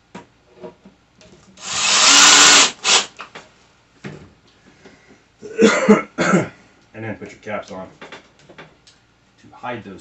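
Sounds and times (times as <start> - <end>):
power drill driving a screw: 1.6 - 3.1.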